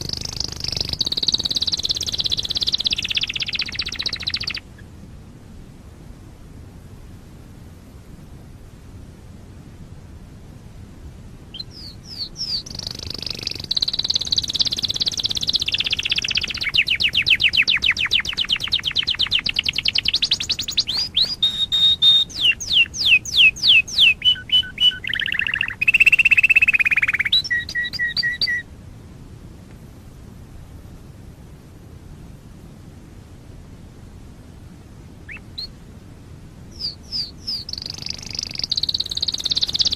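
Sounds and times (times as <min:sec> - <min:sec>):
canary singing: 0:00.0 - 0:04.8, 0:11.5 - 0:28.6, 0:35.3 - 0:35.8, 0:36.7 - 0:39.9
faint hiss: 0:00.0 - 0:39.9.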